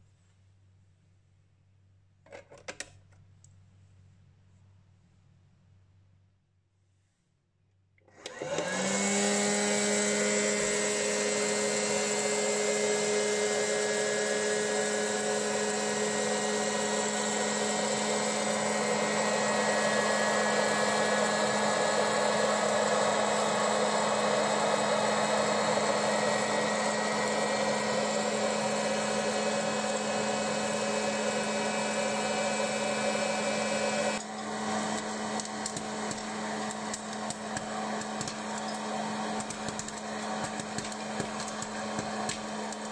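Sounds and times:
popcorn maker blower whine: 0:08.0 - 0:42.9
popcorn kernels popping: 0:34.2 - 0:42.9.

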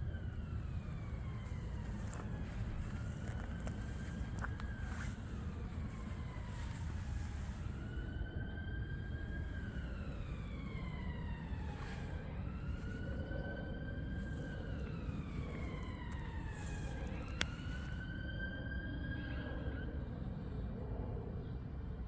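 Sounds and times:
low rumble: 0:00.0 - 0:18.0
siren wailing: 0:00.0 - 0:21.4.

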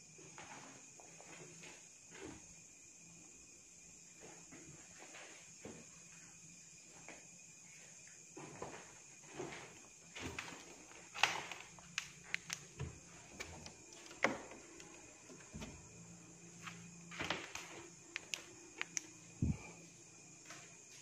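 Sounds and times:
faint high hum: 0:14.2 - 0:21.0.

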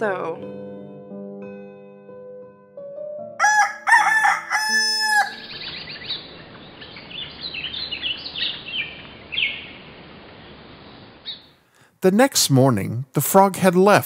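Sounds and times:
soft sustained music: 0:00.0 - 0:09.9
rooster crowing: 0:03.4 - 0:05.6
small birds chirping: 0:05.1 - 0:11.8
steady outdoor hiss: 0:05.2 - 0:14.0.

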